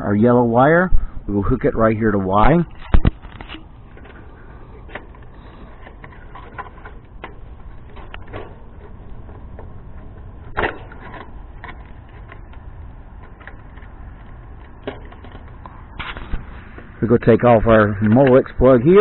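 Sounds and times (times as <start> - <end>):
steady low rumble: 0.0 - 19.0
wire connectors clicking and rattling: 2.7 - 16.3.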